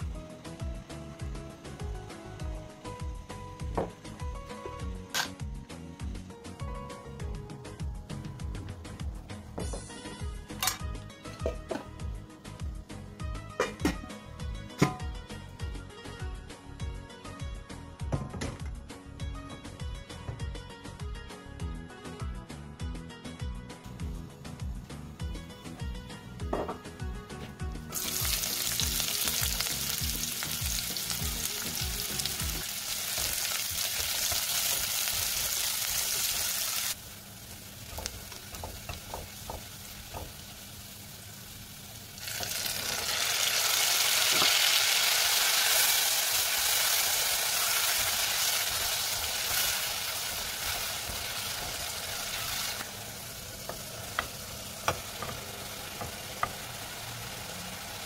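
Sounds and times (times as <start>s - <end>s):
onions sizzling in oil: 0.0s - 6.2s, 27.9s - 58.0s.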